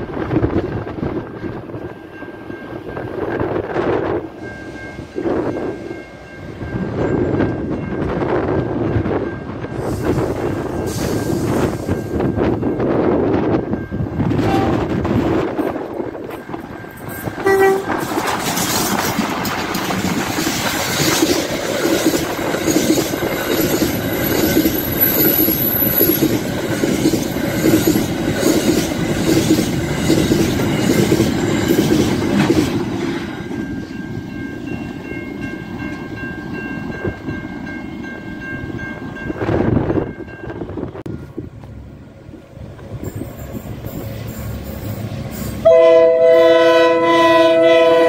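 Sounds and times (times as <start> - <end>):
train horn blast: 14.3 - 15.1, 17.4 - 18.0, 45.6 - 48.0
wagon wheels clattering on rails: 17.9 - 33.2.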